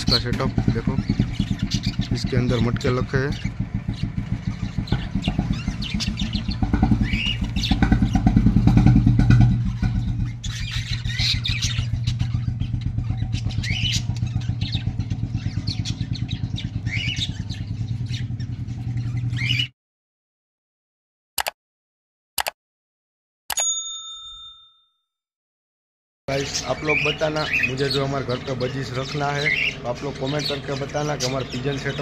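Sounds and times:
budgerigars chirping: 0:00.0 - 0:08.8, 0:09.4 - 0:19.7, 0:26.3 - 0:32.0
engine rumbling: 0:00.0 - 0:19.7, 0:26.3 - 0:32.0.

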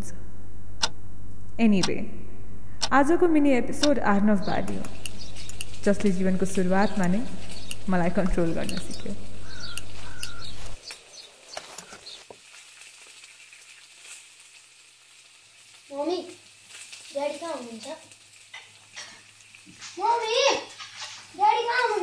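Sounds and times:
food sizzling in a pan: 0:04.7 - 0:22.0.

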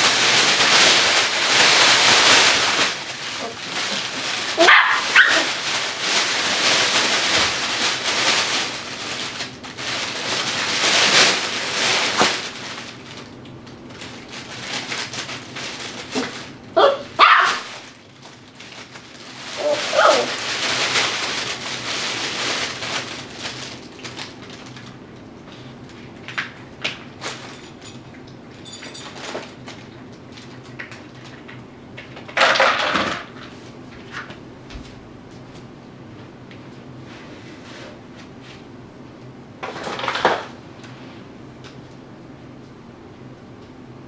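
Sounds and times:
plastic sheeting rustling: 0:00.0 - 0:28.0
puppy barking: 0:04.6 - 0:05.5, 0:16.8 - 0:17.7, 0:19.6 - 0:20.4.

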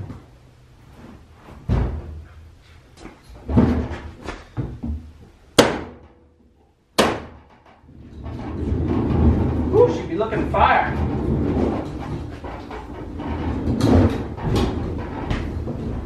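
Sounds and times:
heavy cabinet thuds and clunks: 0:01.0 - 0:06.4, 0:07.0 - 0:16.0
sharp metallic bangs: 0:07.0 - 0:07.5.

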